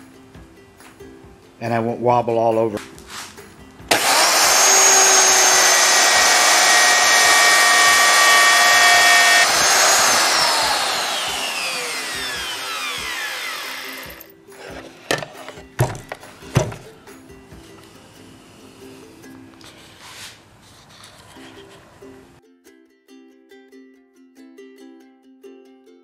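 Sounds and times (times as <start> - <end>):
router whining: 3.9 - 16.8
knocks: 15.1 - 16.9.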